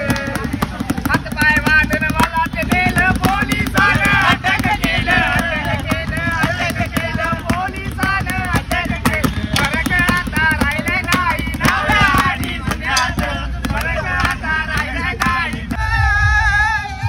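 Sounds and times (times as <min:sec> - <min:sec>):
drum hits: 0:00.0 - 0:16.0.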